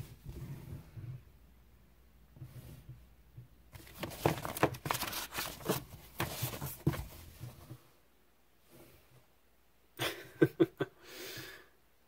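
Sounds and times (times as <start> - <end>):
paper pages rustling: 3.8 - 7.7.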